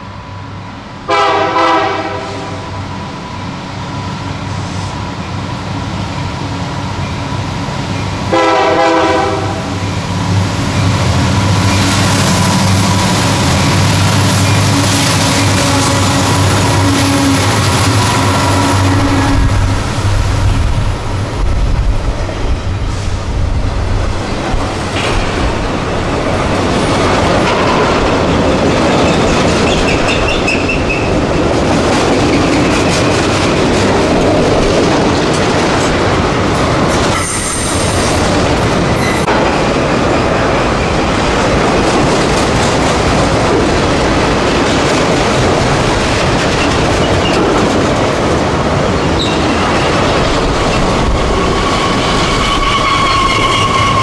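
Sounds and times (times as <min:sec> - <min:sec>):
train wheels clattering over rails: 0:10.6 - 0:54.0
wheel squeals: 0:50.6 - 0:54.0.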